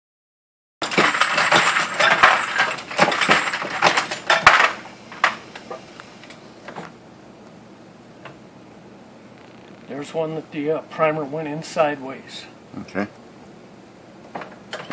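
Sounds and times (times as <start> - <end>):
metallic clattering of cartridge cases: 0.8 - 5.8.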